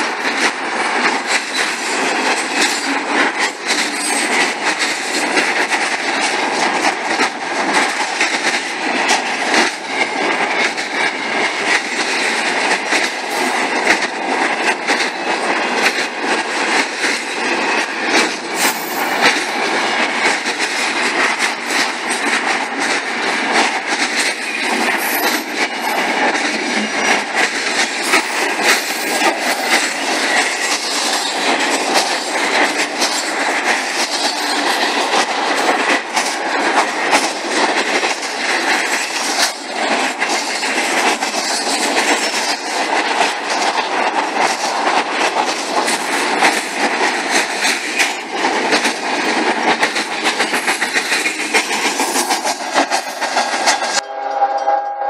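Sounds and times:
train wheels rumbling and rattling: 0:00.0 - 0:54.0
wheels clicking over rails: 0:00.0 - 0:54.0
train horn: 0:54.0 - 0:55.0.

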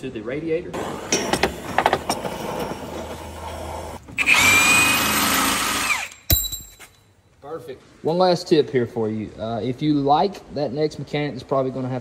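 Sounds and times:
power tool whining: 0:03.3 - 0:06.3.

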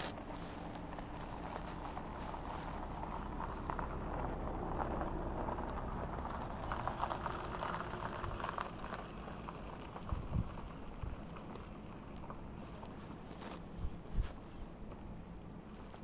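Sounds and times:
wind rumble on microphone: 0:00.0 - 0:14.8.

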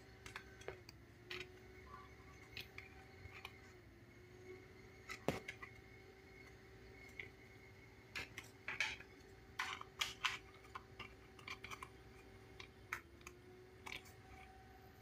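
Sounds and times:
faint steady hum: 0:00.0 - 0:15.0
plastic parts clicking: 0:08.1 - 0:14.6.

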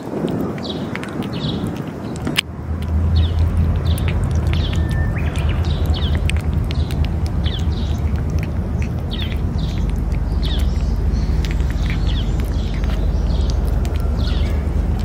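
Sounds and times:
birds chirping: 0:00.0 - 0:15.0
cat eating wet food: 0:00.0 - 0:15.0
low rumble: 0:00.1 - 0:15.0.

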